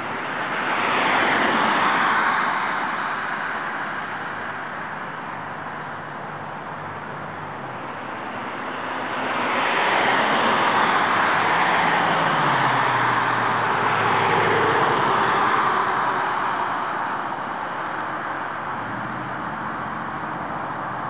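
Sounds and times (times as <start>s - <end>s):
vehicle passing: 8.1s - 17.4s.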